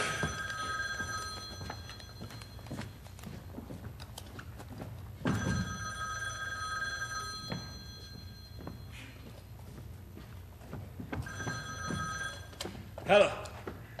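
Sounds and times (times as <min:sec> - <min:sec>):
telephone ringing: 0:00.0 - 0:03.1, 0:05.2 - 0:09.0, 0:11.2 - 0:12.8
footsteps on stage floor: 0:00.0 - 0:05.8, 0:07.4 - 0:14.0.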